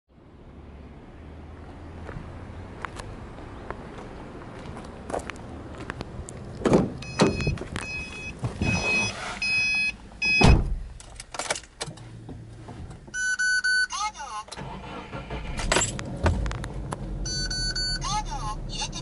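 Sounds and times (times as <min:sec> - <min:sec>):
car door shutting: 0:06.6 - 0:10.9, 0:15.4 - 0:16.8
car reminder chime beeping: 0:07.0 - 0:10.5, 0:13.2 - 0:14.0, 0:17.2 - 0:18.4.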